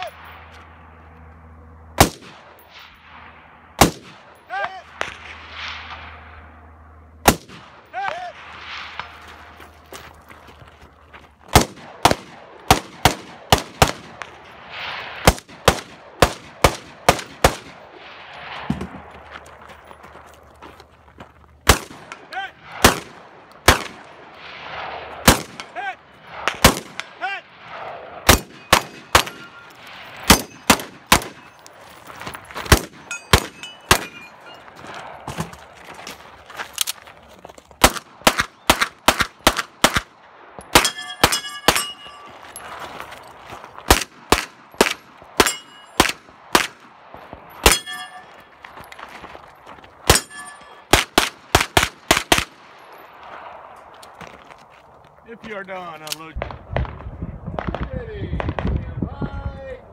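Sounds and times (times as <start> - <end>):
pistol shots: 2.0 - 2.6, 3.8 - 6.2, 7.2 - 9.2, 11.5 - 14.4, 15.2 - 17.9, 21.6 - 31.7, 32.6 - 34.5, 37.8 - 42.4, 43.9 - 48.4, 50.0 - 53.6
rifle shots: 2.0 - 9.6, 11.5 - 19.1, 21.6 - 31.7, 32.6 - 35.5, 37.8 - 42.4, 43.8 - 48.4, 50.0 - 53.7.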